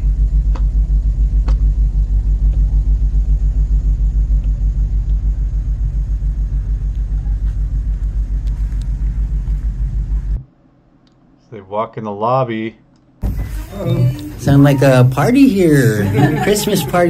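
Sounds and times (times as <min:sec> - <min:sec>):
pulsing low rumble: 0:00.0 - 0:10.5.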